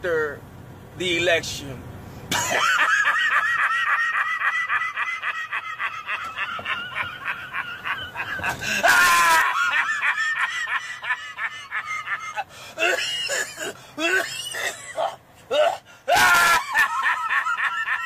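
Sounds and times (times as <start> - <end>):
man laughing uncontrollably: 2.3 - 18.0
man shrieking: 8.5 - 9.9, 14.0 - 17.1.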